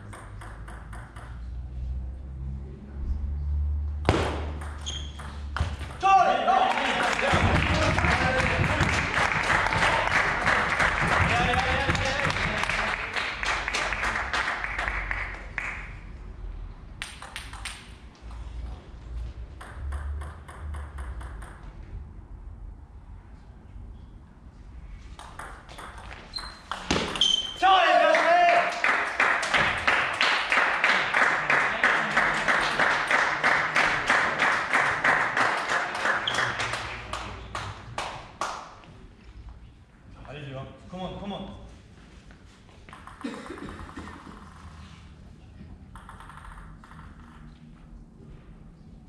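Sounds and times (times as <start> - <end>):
sharp loud ball strike: 4.0 - 4.7
low steady hall hum: 5.4 - 49.0
low hall rumble: 5.5 - 17.2, 42.9 - 49.0
table tennis ball clicking: 17.0 - 17.9, 19.6 - 21.7, 45.9 - 47.5.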